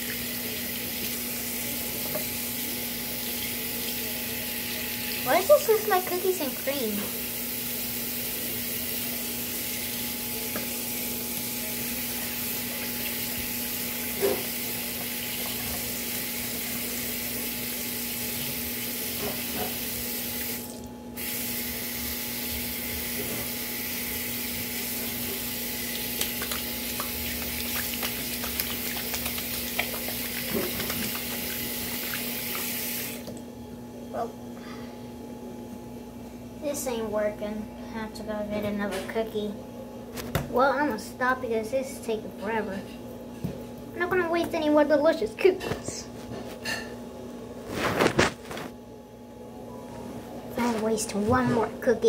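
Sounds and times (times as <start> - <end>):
tap water running into sink: 12.3 - 19.8, 24.3 - 33.4.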